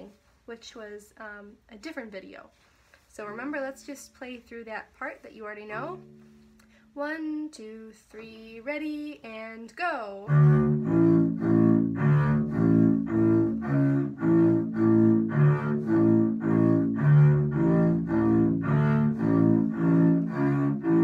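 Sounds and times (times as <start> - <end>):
bowed double bass notes: 5.6 - 7.0, 10.2 - 21.0.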